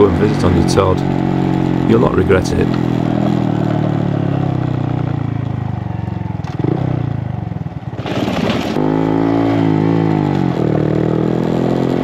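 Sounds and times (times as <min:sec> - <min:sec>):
motorbike engine slowing: 0:00.0 - 0:08.8
wheels rattling over cattle grid: 0:08.0 - 0:08.8.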